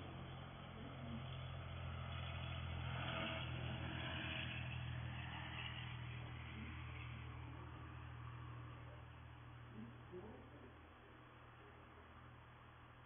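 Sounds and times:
vehicle passing: 0:00.0 - 0:10.5
steady low hum: 0:00.0 - 0:13.0.

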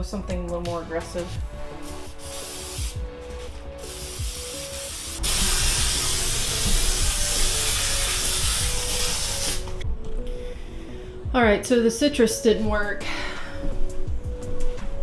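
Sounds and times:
aerosol can spraying: 0:01.8 - 0:09.8.

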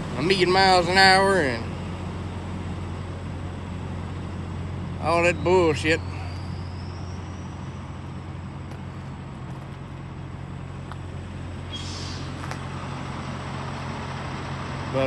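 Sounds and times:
diesel truck idling: 0:00.0 - 0:15.0
short hiss: 0:11.7 - 0:12.4.

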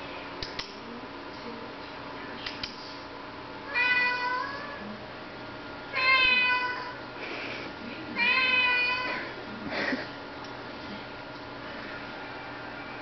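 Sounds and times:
cat meowing: 0:03.7 - 0:04.8, 0:05.9 - 0:07.0, 0:08.2 - 0:09.3.

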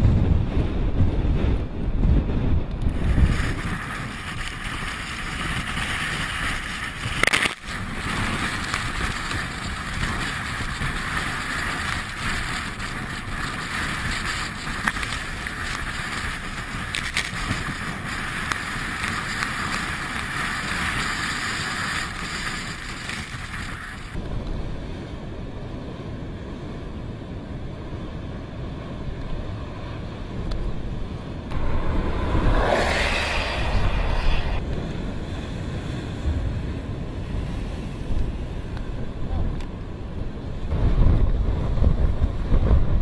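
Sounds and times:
wind rumble on microphone: 0:00.0 - 0:43.0
surf breaking on rocks: 0:02.9 - 0:24.2.

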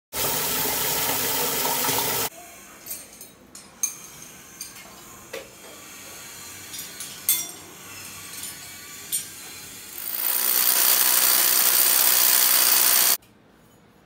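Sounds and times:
tap water pouring into bucket: 0:00.2 - 0:02.3.

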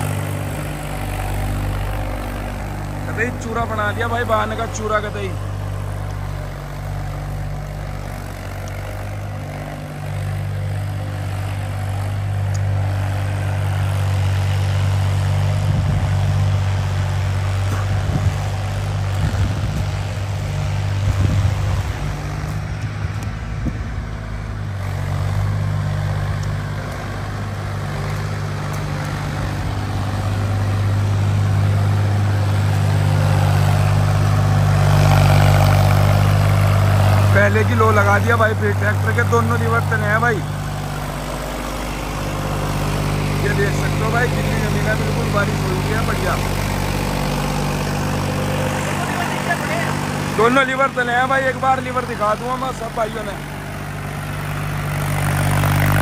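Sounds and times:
tractor diesel engine: 0:00.0 - 0:56.0.

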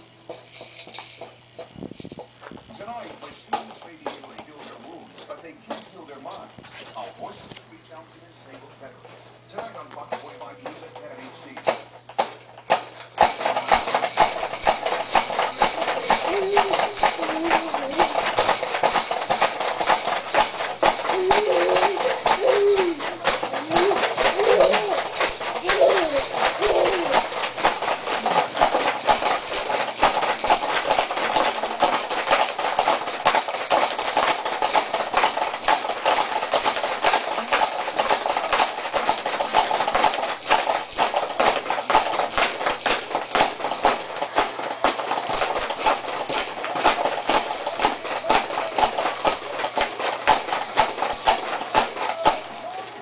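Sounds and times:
baby jumper rattling: 0:00.0 - 0:07.5, 0:08.8 - 0:53.0
short voice sounds: 0:21.1 - 0:27.2.

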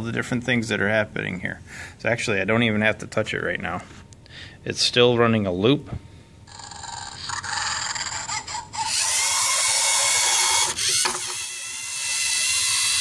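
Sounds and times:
toy robot motors whining: 0:06.5 - 0:13.0.

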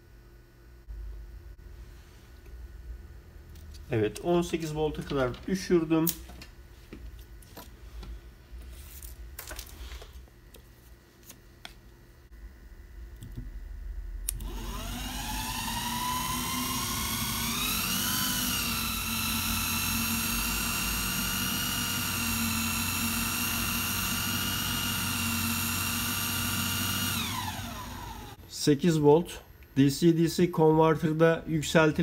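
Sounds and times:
drill motor whining: 0:14.3 - 0:28.4.

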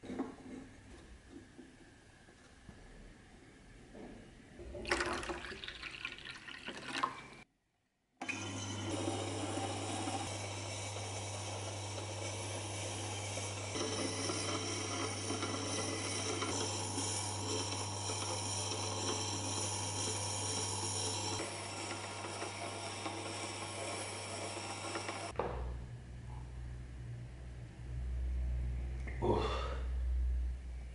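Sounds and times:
water pouring from plastic bottle: 0:04.8 - 0:07.4
grinder motor humming: 0:08.2 - 0:25.4.

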